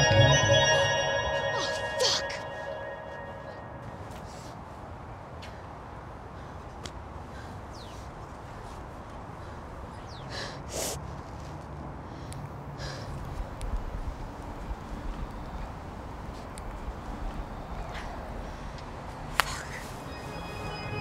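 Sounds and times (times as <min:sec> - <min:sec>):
faint high chirps: 0:00.0 - 0:04.1
street ambience: 0:00.0 - 0:21.0.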